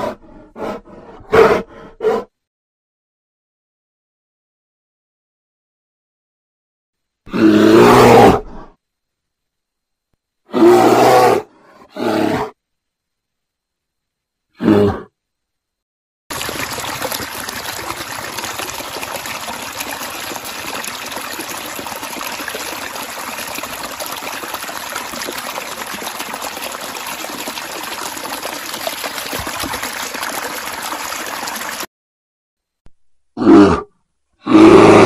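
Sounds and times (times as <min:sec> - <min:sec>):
shallow stream water rushing: 0:16.3 - 0:31.9.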